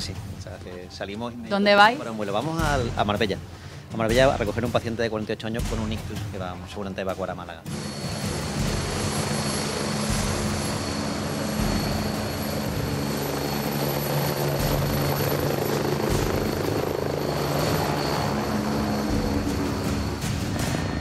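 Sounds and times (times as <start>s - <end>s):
helicopter engine and rotor: 0.0s - 21.0s
high turbine whine: 7.6s - 21.0s.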